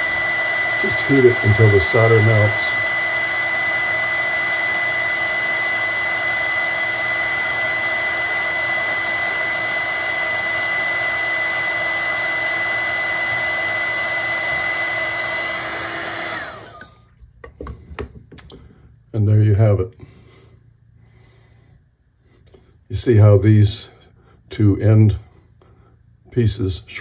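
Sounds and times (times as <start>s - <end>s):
heat gun blowing with high whine: 0.0s - 17.1s.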